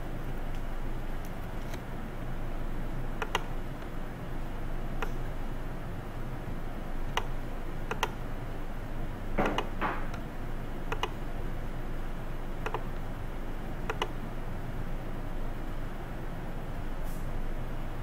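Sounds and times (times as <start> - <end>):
background hum and hiss: 0.0 - 18.0
computer mouse clicking: 3.2 - 3.9, 5.0 - 5.2, 7.1 - 7.3, 7.9 - 8.2, 9.4 - 10.2, 10.9 - 11.2, 12.6 - 13.0, 13.9 - 14.2.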